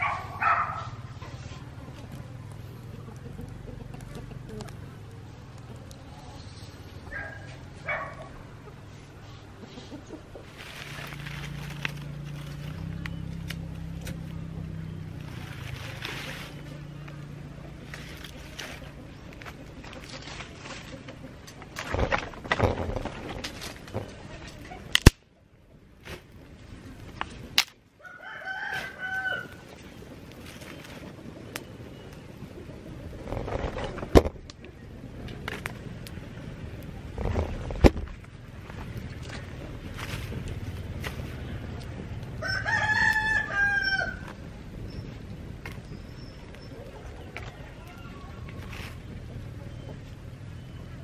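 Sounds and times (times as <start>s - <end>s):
wood fire burning and crackling: 0.0s - 9.2s, 10.2s - 51.0s
dry leaves rustling: 10.4s - 24.8s, 26.0s - 31.3s, 38.5s - 44.5s
loud sharp pops: 24.9s - 25.3s.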